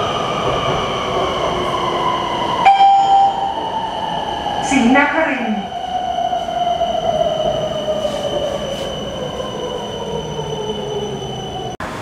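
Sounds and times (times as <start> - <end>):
steady high tone: 2.6 - 5.0.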